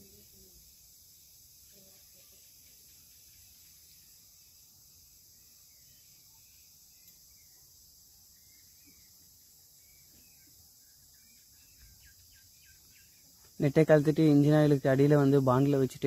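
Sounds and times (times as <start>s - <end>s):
faint chirps: 0.0s - 16.0s
faint high outdoor hiss: 0.0s - 16.0s
small tick: 7.0s - 7.2s.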